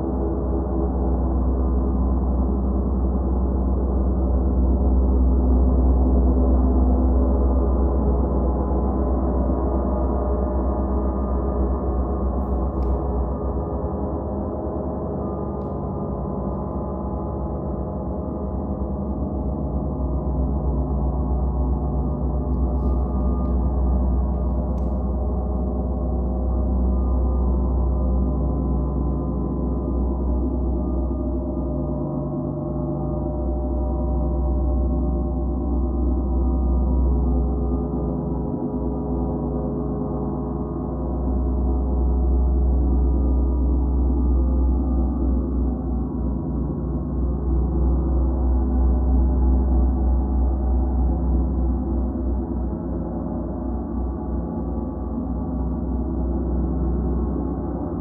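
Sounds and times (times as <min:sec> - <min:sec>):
deep low hum: 0:11.1 - 0:37.9, 0:41.0 - 0:58.0.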